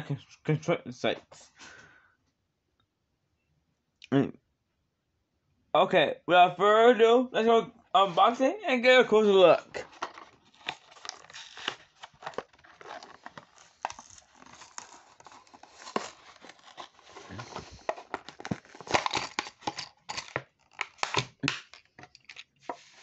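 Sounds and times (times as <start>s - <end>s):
blister pack being torn and crinkled: 9.8s - 22.5s.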